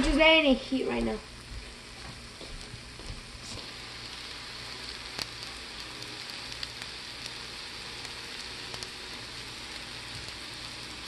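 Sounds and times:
butter sizzling in a frying pan: 0.1 - 11.0
hot fat popping: 2.5 - 11.0.

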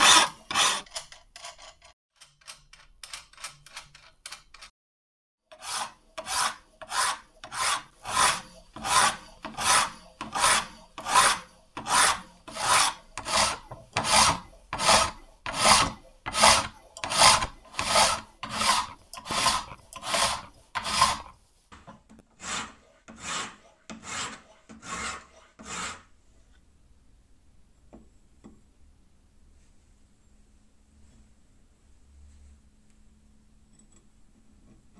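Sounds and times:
file rasping across steel blade: 0.0 - 0.9, 5.5 - 21.4, 22.4 - 26.1.

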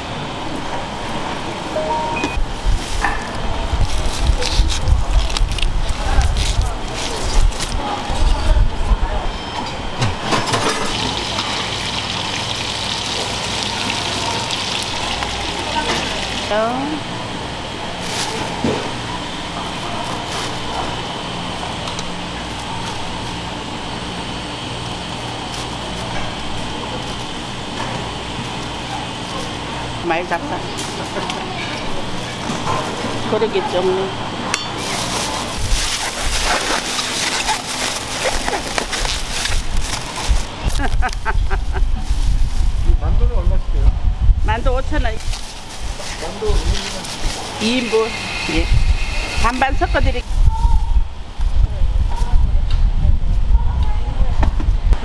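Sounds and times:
faint voices: 0.0 - 12.2, 13.0 - 55.0
water running steadily: 10.9 - 16.6
plastic bag crinkling: 34.8 - 42.8, 45.1 - 47.9.

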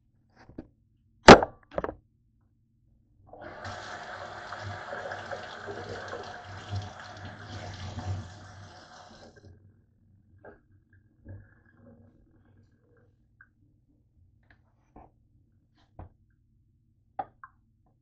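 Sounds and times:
water running from a tap: 3.4 - 9.5.

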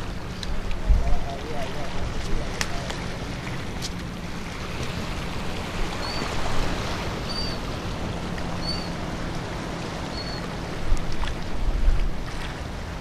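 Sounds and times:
wind noise: 0.0 - 2.8, 10.6 - 13.0
water lapping against rocks: 0.0 - 13.0
wind buffeting microphone: 0.0 - 13.0.

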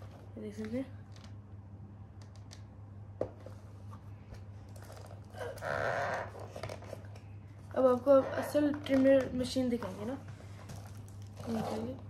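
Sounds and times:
cardboard scraping rustle: 9.8 - 12.0.

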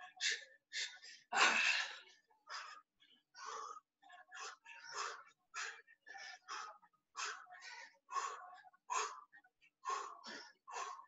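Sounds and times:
person breathing heavily: 3.4 - 3.8, 4.4 - 9.2, 9.8 - 11.0.

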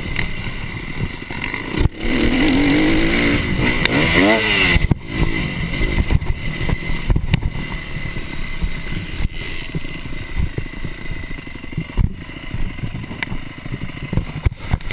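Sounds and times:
motocross bike engine revving: 0.0 - 14.9
bike knocks and rattles: 11.7 - 14.9.

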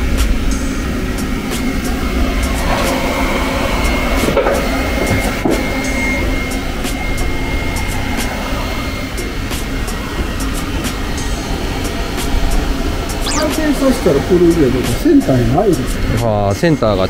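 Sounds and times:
machine whir with high whine: 12.8 - 14.6.

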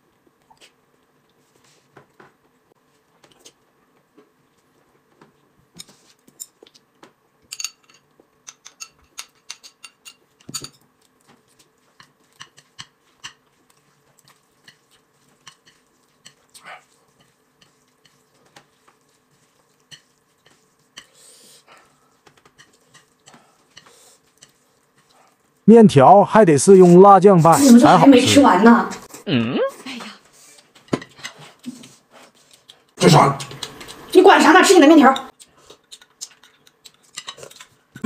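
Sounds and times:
utensils clinking on ceramic bowl: 7.5 - 10.8.

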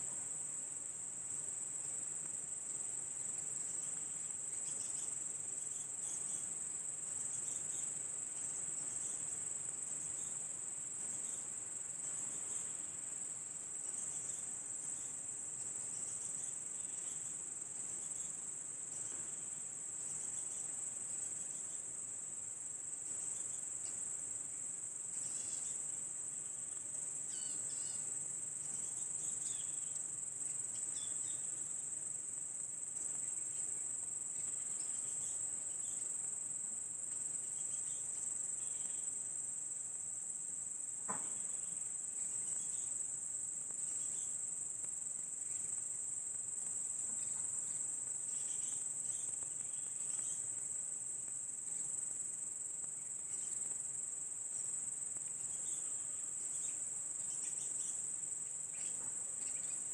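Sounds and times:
insects buzzing shrilly: 25.0 - 32.4, 41.2 - 51.0.

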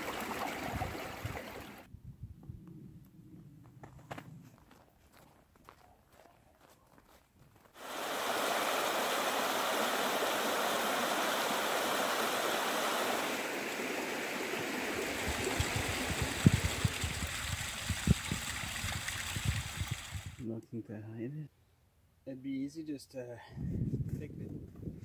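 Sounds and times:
creek water flowing over rocks: 0.0 - 1.9, 7.8 - 20.4
footsteps in snow: 3.8 - 7.8.

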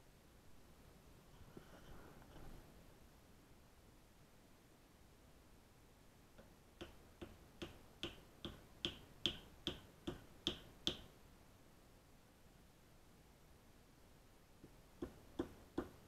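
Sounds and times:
axe knocking on wooden block: 6.8 - 11.0, 15.0 - 16.0.

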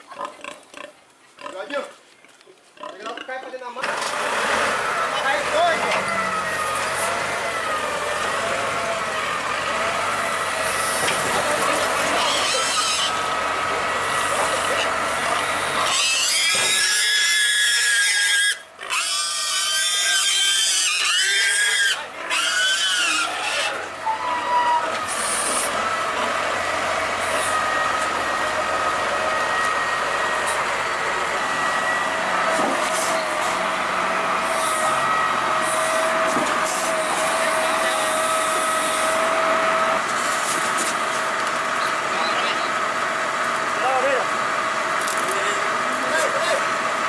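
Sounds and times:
loader engine and hydraulics whining: 3.8 - 47.0
pig squealing: 9.8 - 13.4, 14.1 - 25.8.

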